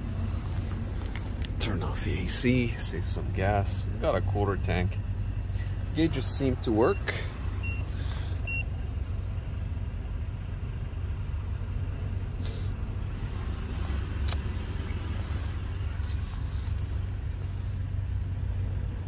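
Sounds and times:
truck engine idling: 0.0s - 19.0s
click: 14.2s - 15.0s.

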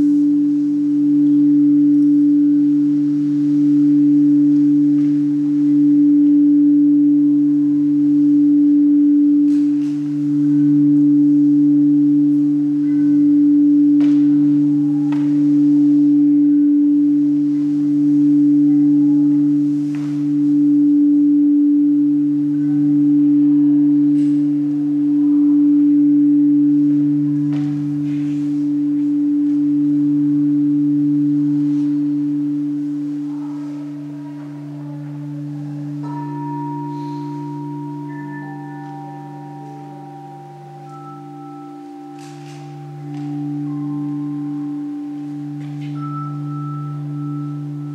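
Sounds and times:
musical drone: 0.0s - 47.9s.

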